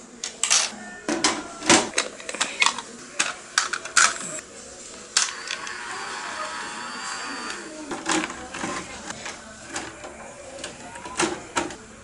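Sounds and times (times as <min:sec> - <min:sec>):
small motor whirring: 0:05.3 - 0:07.8.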